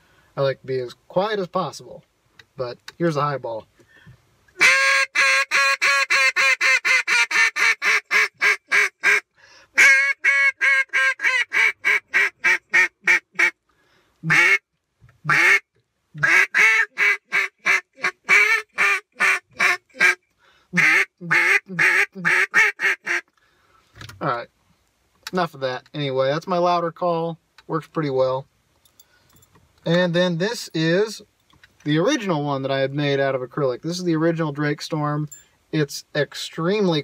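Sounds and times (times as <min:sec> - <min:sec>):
duck call quacks: 0:04.6 - 0:13.6, 0:14.2 - 0:14.6, 0:15.2 - 0:15.6, 0:16.2 - 0:20.2, 0:20.8 - 0:23.3.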